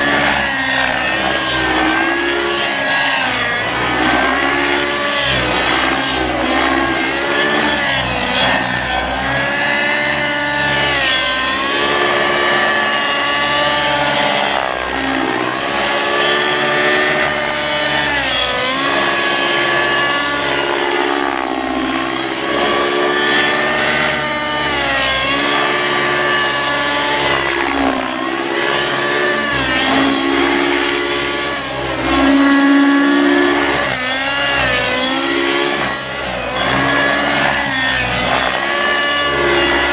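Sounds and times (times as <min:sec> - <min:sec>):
rc helicopter engine and rotor whine: 0:00.0 - 0:39.9.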